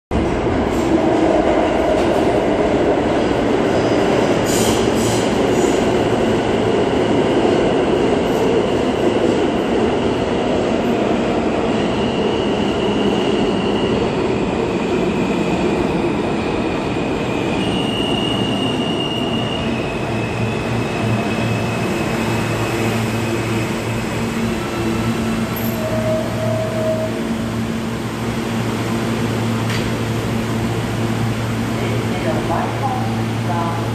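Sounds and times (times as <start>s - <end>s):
train wheels rumbling on rail: 0.1s - 33.9s
high brake squealing: 25.6s - 27.2s.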